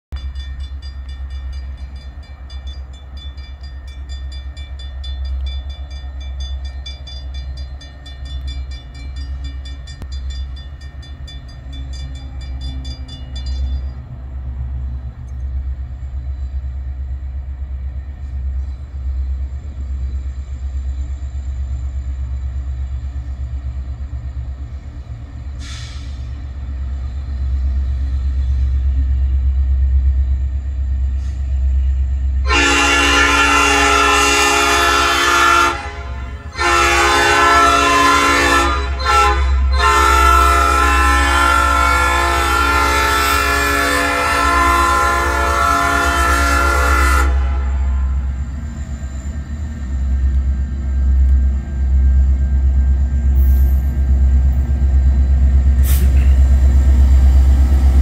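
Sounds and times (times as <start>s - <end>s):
crossing warning bells ringing: 0.1s - 17.0s, 26.5s - 58.0s
diesel locomotive rumble: 0.1s - 58.0s.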